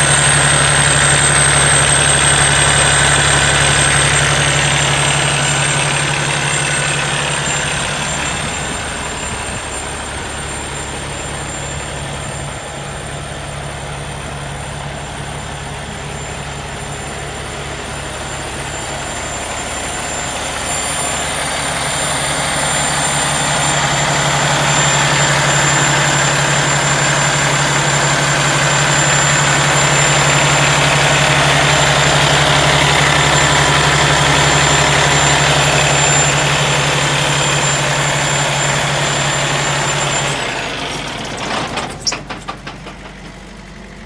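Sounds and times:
diesel truck engine idling: 0.0s - 44.0s.

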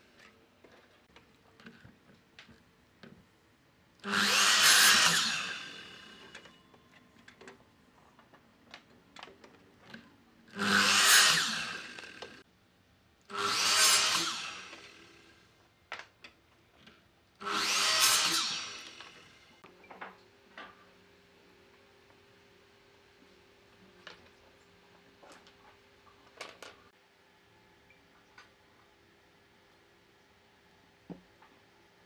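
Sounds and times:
miter saw cutting wood: 4.0s - 6.4s, 10.5s - 12.4s, 13.3s - 15.4s, 17.4s - 19.5s.

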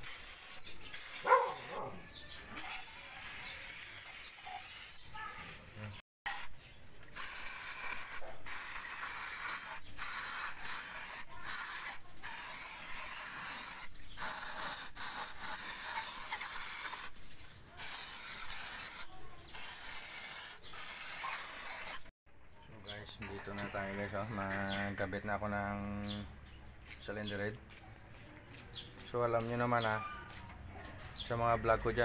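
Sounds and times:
aerosol spray hissing: 0.0s - 1.8s, 2.6s - 5.0s, 7.2s - 17.2s, 17.8s - 22.1s.

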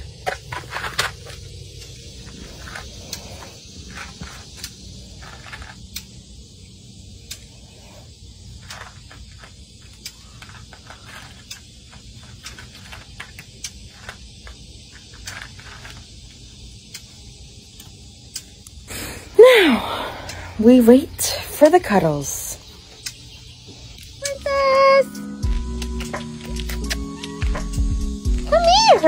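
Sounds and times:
low steady rumble: 14.7s - 24.8s.

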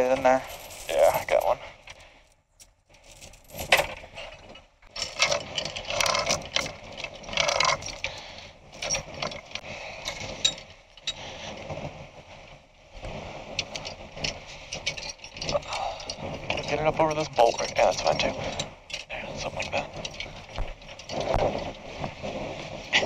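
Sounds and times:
steel chain clinking and rattling: 0.0s - 1.7s, 3.0s - 8.1s, 8.7s - 11.2s, 13.5s - 22.5s.

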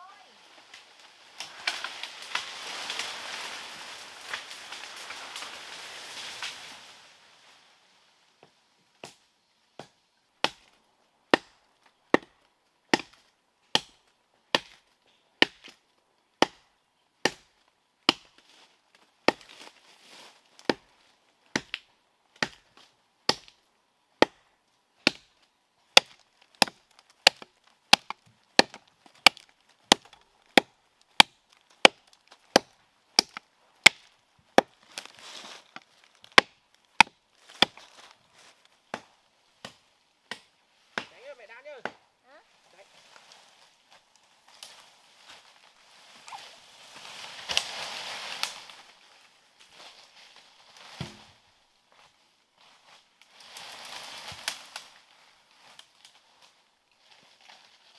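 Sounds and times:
wood being chopped: 8.4s - 9.2s, 9.8s - 14.8s, 15.4s - 15.8s, 16.4s - 18.4s, 19.2s - 19.6s, 20.6s - 20.9s, 21.5s - 23.6s, 24.2s - 38.1s, 38.9s - 42.0s, 50.8s - 51.4s.

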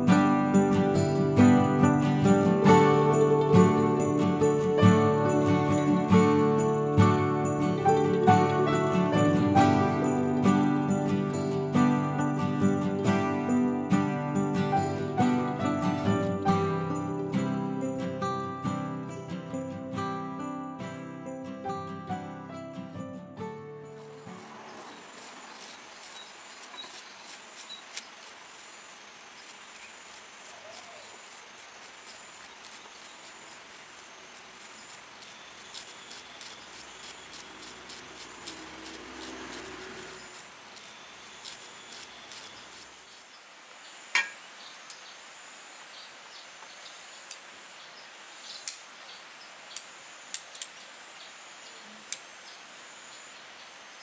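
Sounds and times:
insects chirring: 0.0s - 20.2s, 23.4s - 54.0s
pruning shears snipping twigs: 24.0s - 43.2s, 48.6s - 48.9s.

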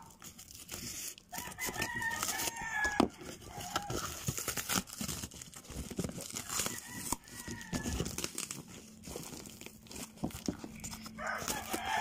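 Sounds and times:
scissors cutting cardboard: 0.0s - 12.0s
rooster crowing: 1.3s - 4.3s, 6.4s - 8.3s, 10.8s - 12.0s.

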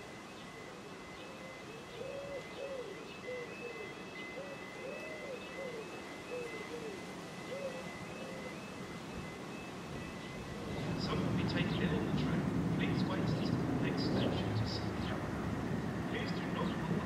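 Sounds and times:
pigeon cooing: 0.5s - 8.7s.

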